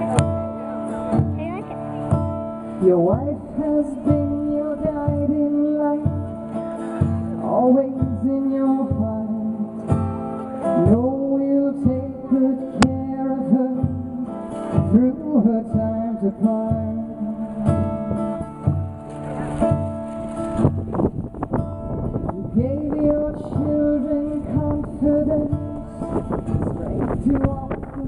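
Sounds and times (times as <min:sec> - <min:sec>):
strummed acoustic guitar: 0:00.0 - 0:28.0
woman singing: 0:02.8 - 0:06.3, 0:07.4 - 0:09.7, 0:10.8 - 0:14.0, 0:14.9 - 0:18.0, 0:22.3 - 0:25.9, 0:26.6 - 0:28.0.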